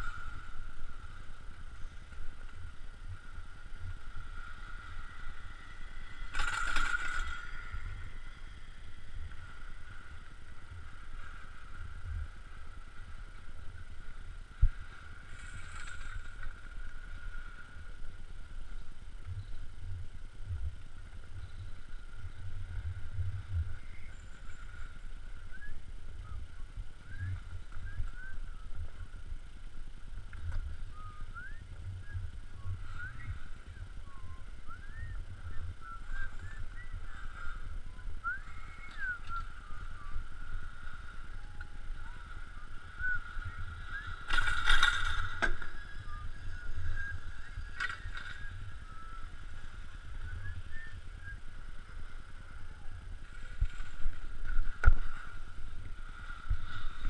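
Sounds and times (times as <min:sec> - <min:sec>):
squeaky ski lift whine: 0:00.0 - 0:13.9, 0:30.4 - 0:54.4.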